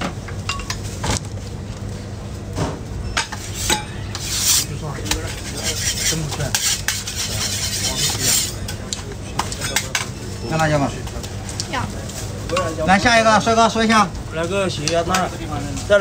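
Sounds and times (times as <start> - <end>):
metal spatula scraping griddle: 3.3 - 8.8.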